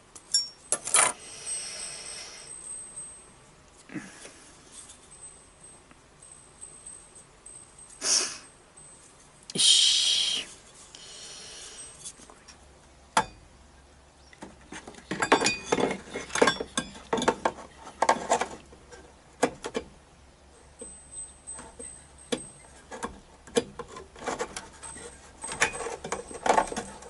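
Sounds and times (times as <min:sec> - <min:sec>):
metal parts clinking and scraping: 0:00.2 - 0:03.3, 0:04.2 - 0:09.4, 0:14.7 - 0:19.0, 0:20.7 - 0:27.0.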